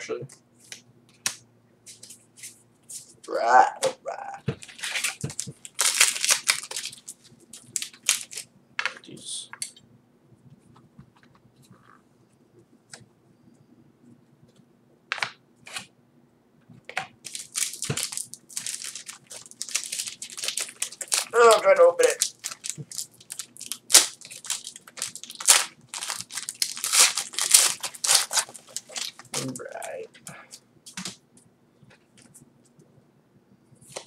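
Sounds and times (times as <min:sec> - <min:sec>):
foil wrapper crinkling: 0:04.6 - 0:08.5, 0:17.2 - 0:30.1.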